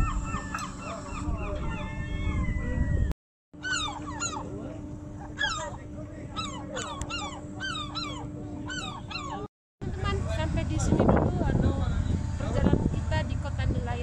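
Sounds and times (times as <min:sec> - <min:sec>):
gulls calling: 0:00.0 - 0:10.4
steady low hum: 0:00.0 - 0:14.0.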